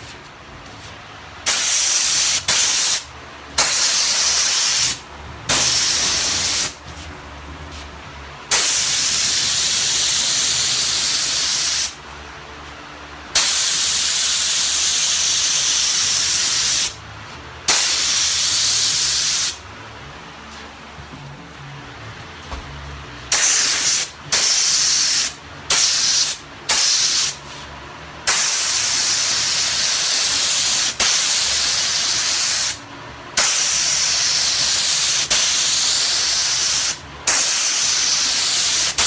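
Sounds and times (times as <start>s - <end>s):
paint spray gun hissing: 1.5s - 6.8s, 8.5s - 12.0s, 13.4s - 17.0s, 17.7s - 19.6s, 23.3s - 27.4s, 28.3s - 32.8s, 33.4s - 39.0s
low hum: 19.6s - 23.3s.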